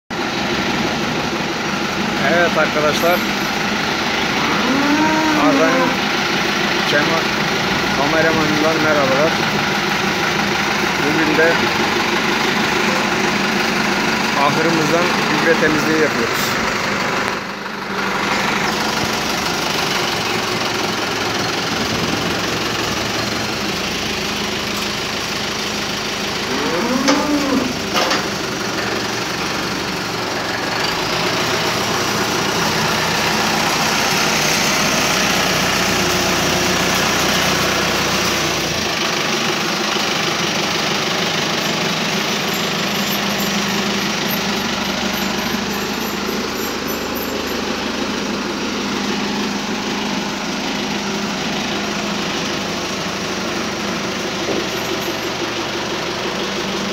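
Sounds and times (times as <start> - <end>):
tractor engine running: 0.1 - 56.9
cow mooing: 4.4 - 6.0, 26.4 - 27.9.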